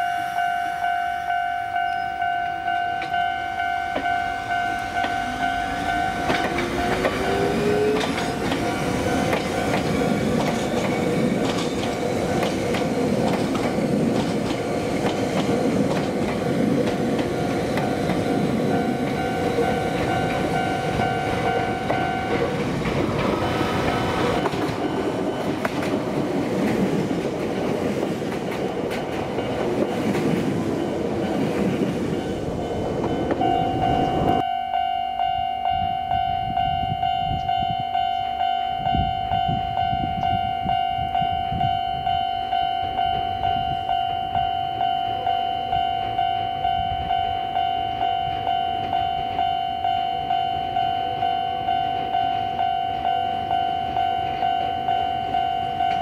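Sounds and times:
level crossing bell dinging: 0.0 - 9.8, 17.4 - 22.6, 32.2 - 56.0
train rumble and wheel clatter: 0.0 - 56.0.

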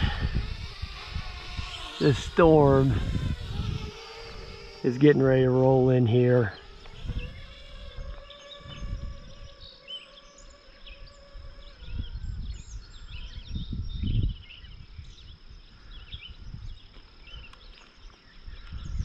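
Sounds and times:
birds chirping: 0.0 - 19.0
high insect drone: 0.0 - 19.0
wind rumbling on microphone: 0.0 - 19.0.

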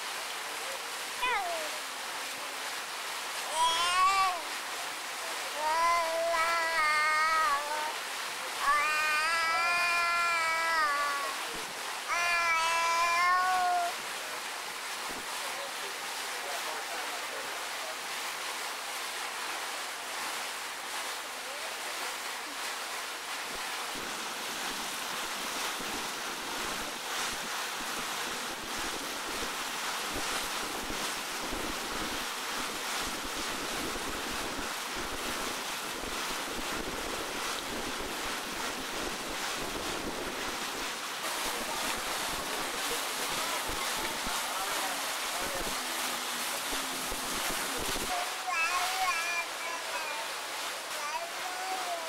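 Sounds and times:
lake water washing: 0.0 - 52.0
wind blowing across microphone: 23.4 - 48.2.

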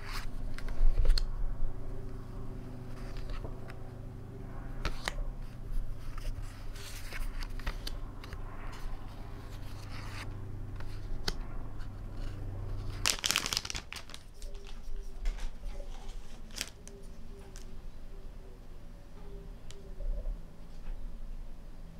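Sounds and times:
low steady hum: 0.0 - 21.9
paper pages rustling: 4.8 - 17.7.

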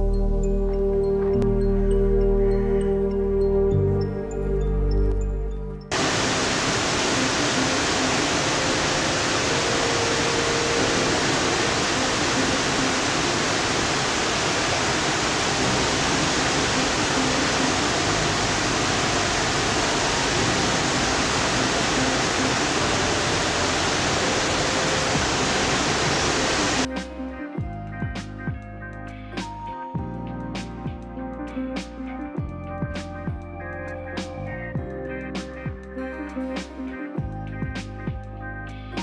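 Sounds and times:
waterfall rushing: 5.9 - 26.9.

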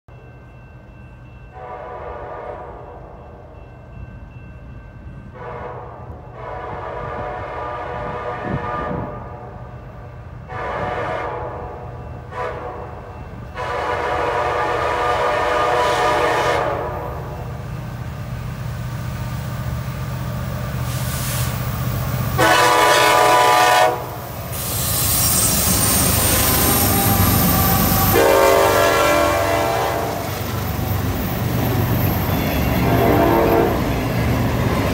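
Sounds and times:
train air horn blasts: 1.6 - 3.0, 5.3 - 9.7, 10.4 - 17.4, 22.4 - 30.4, 32.8 - 33.9
diesel locomotive rumble: 5.0 - 34.9.

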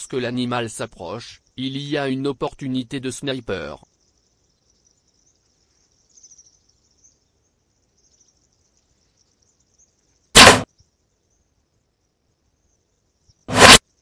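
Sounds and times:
faint insect chirring: 0.0 - 14.0
loud sharp gunshot: 10.4 - 10.7, 13.5 - 13.8.

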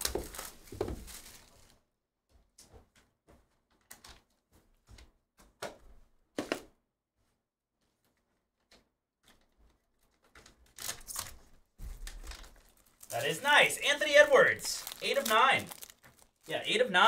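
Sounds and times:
foil wrapper tearing and crinkling: 10.4 - 16.6.

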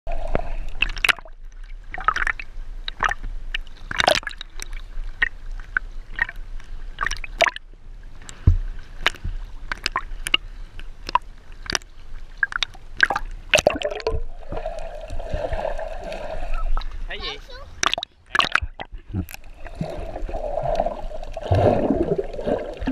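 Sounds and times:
water sloshing and gurgling: 0.1 - 22.9
sharp clicks and pops: 8.2 - 14.3, 17.8 - 19.5.

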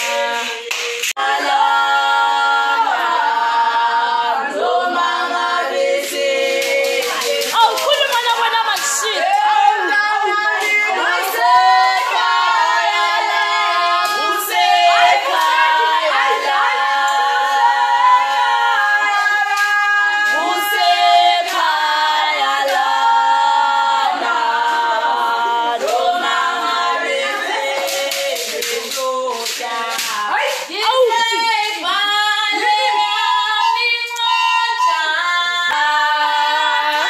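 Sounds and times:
hand claps: 0.0 - 1.3, 6.0 - 17.3, 18.0 - 23.1, 25.8 - 32.0
women singing together: 0.0 - 37.0.

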